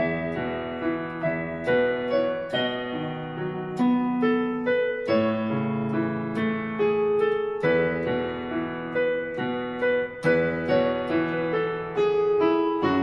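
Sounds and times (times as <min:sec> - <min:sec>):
electronic keyboard piano playing: 0:00.0 - 0:13.0.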